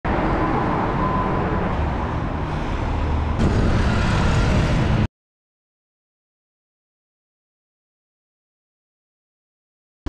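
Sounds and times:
road noise: 0:00.0 - 0:05.1
bus engine hum: 0:00.1 - 0:05.1.

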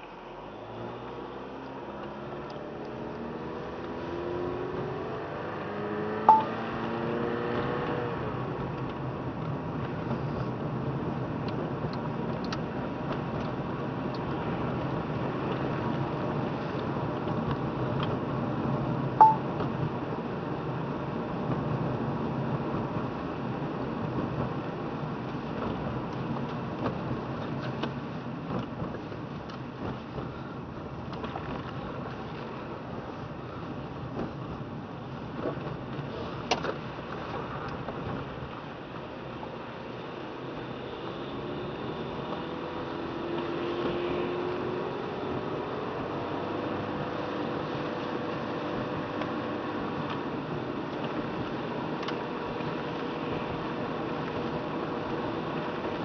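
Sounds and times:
car engine: 0:00.0 - 0:56.0
tires on wet road: 0:00.0 - 0:56.0
electronic beep: 0:06.3 - 0:06.5, 0:19.2 - 0:19.4.

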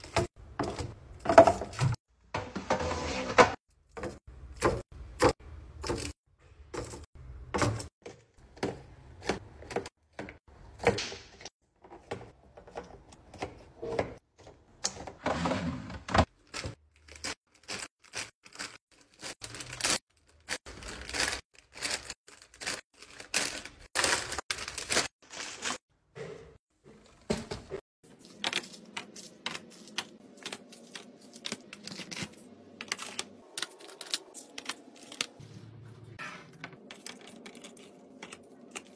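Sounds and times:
snack bags crinkling: 0:16.3 - 0:25.8, 0:28.2 - 0:35.4, 0:36.9 - 0:38.9.

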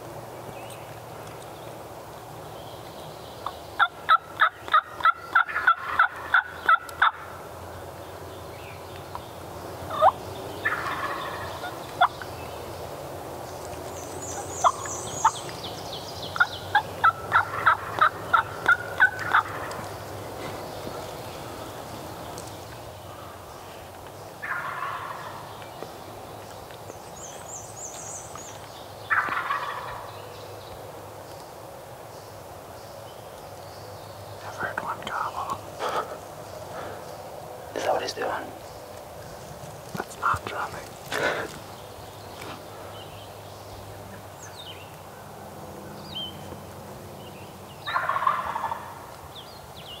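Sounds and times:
wild turkey yelping: 0:03.8 - 0:07.3, 0:09.9 - 0:12.2, 0:16.3 - 0:19.9, 0:24.4 - 0:25.5, 0:29.1 - 0:30.1, 0:47.8 - 0:49.0.

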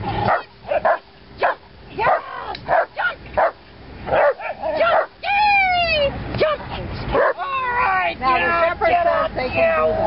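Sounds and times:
dog barking: 0:00.3 - 0:05.1, 0:07.1 - 0:07.4.

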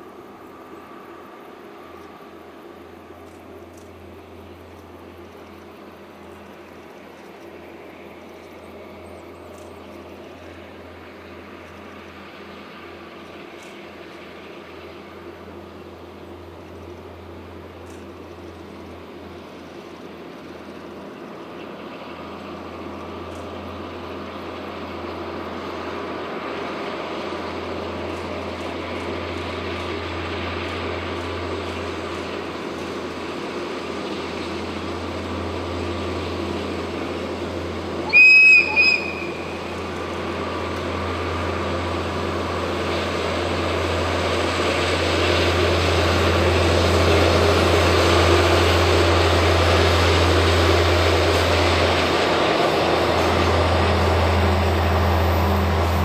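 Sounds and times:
diesel train engine drone: 0:00.0 - 0:56.0
train horn blast: 0:38.0 - 0:39.7.

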